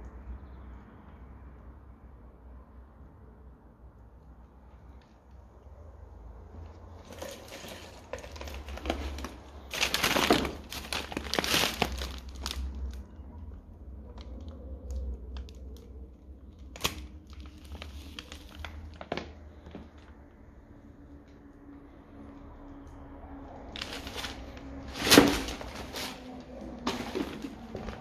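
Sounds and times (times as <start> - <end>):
paper and cardboard rustling: 7.0 - 12.6, 23.7 - 28.0.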